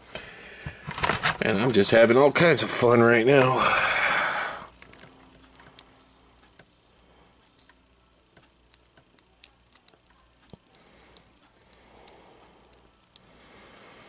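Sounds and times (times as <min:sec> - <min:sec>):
breathy hiss: 0:03.4 - 0:04.8, 0:10.7 - 0:14.0.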